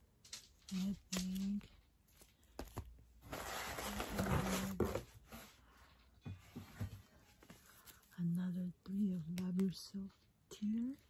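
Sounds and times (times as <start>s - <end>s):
cardboard box rustling: 2.5s - 5.6s.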